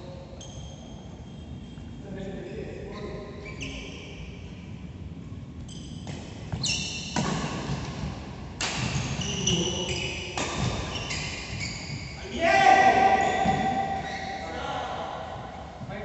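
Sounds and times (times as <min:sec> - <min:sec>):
sneakers squeaking on court: 0:00.4 - 0:02.0, 0:02.9 - 0:04.1, 0:05.6 - 0:08.1, 0:08.7 - 0:12.3, 0:13.1 - 0:14.6.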